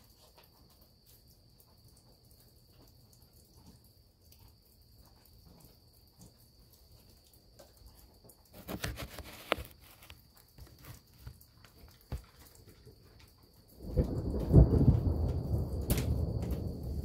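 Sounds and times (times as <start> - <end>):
crickets trilling: 0.0 - 17.0
thunder rumbling: 13.7 - 17.0.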